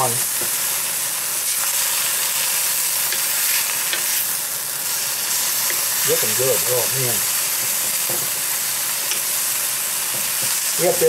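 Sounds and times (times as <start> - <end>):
food sizzling in a wok: 0.0 - 11.0
spatula scraping and tapping wok: 3.0 - 4.3, 5.6 - 6.0.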